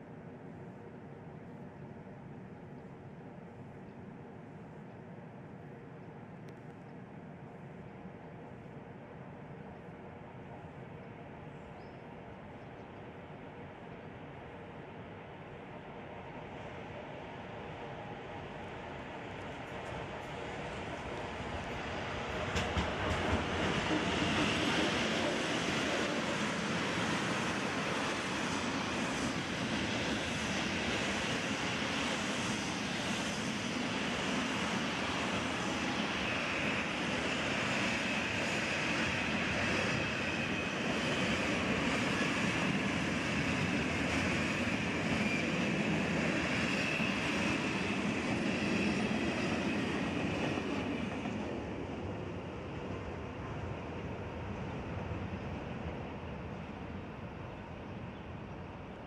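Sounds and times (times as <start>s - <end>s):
train wheels clattering on rails: 19.6s - 26.5s.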